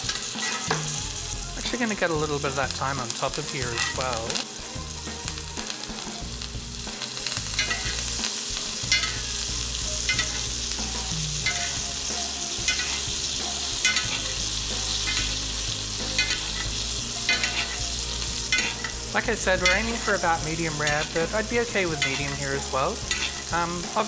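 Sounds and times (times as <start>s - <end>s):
steak sizzling in butter: 0.0s - 24.0s
metal spoon scraping pan: 0.1s - 0.9s, 7.5s - 8.1s, 8.8s - 9.3s, 12.6s - 13.1s, 13.8s - 15.4s, 16.0s - 23.6s.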